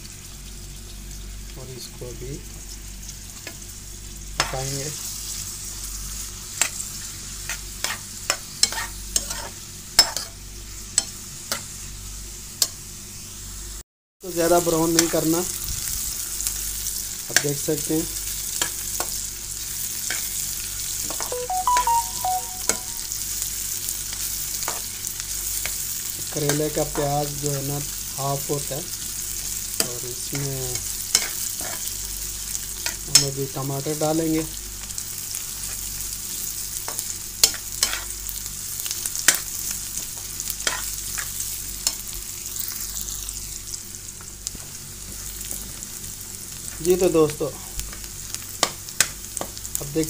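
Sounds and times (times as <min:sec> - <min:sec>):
vegetables sizzling in oil: 0:00.0 - 0:50.0
spatula scraping pan: 0:08.6 - 0:10.3
short pitched notes: 0:21.3 - 0:23.1.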